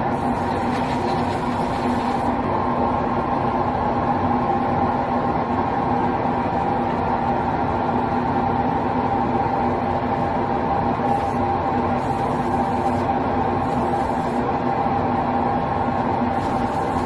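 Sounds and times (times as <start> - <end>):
machine drone with low hum: 0.0 - 17.0
airbrush spraying hisses: 0.1 - 2.3, 11.1 - 11.4, 12.0 - 14.4, 16.4 - 17.0.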